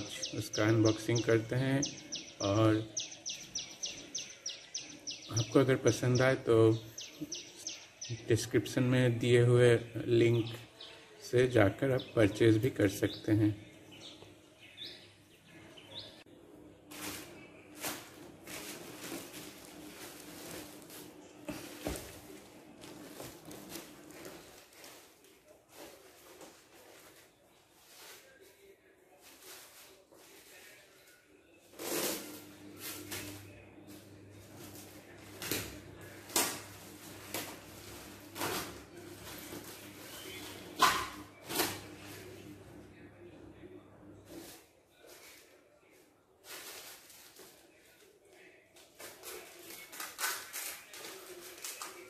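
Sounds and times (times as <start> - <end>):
plastic bag rustling: 16.9 - 42.5, 44.3 - 48.2.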